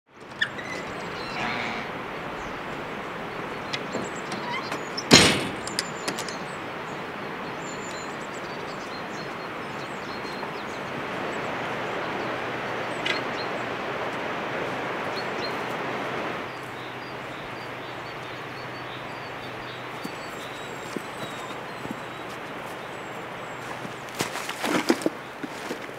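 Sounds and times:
steady outdoor hiss: 0:00.1 - 0:25.9
door banging shut: 0:00.4 - 0:02.1, 0:03.5 - 0:06.4
wooden door knocks and clicks: 0:03.7 - 0:06.4.

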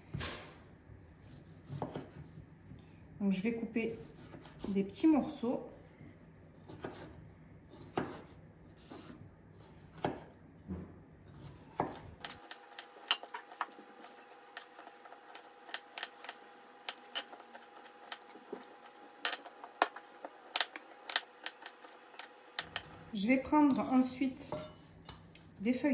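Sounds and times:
knife chopping on wooden board: 0:01.4 - 0:02.2, 0:06.7 - 0:10.3, 0:11.3 - 0:23.0.

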